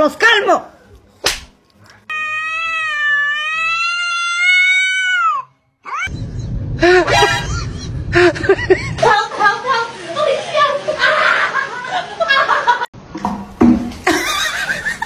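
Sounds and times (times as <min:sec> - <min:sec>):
kitten meowing: 0:02.1 - 0:06.1.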